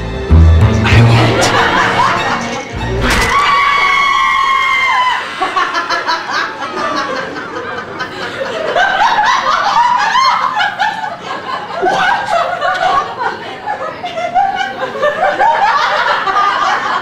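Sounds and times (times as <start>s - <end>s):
held high note: 0.3s - 4.1s
audience laughing: 0.9s - 2.8s, 5.0s - 17.0s.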